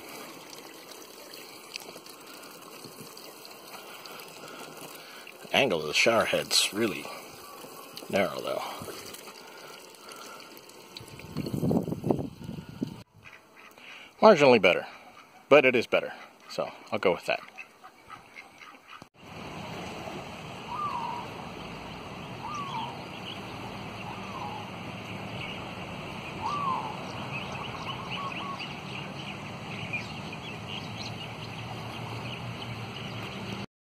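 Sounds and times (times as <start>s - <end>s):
water and wind at shoreline: 0.0s - 33.6s
bird whistles: 20.7s - 21.3s, 22.4s - 23.0s, 26.4s - 28.7s
high bird chirps: 20.7s - 31.6s.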